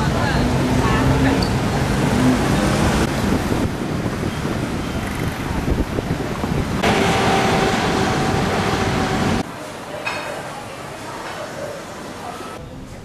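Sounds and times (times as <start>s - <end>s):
busy street noise: 0.0s - 13.0s
wind buffeting microphone: 1.6s - 9.4s
steady hum: 6.8s - 9.4s.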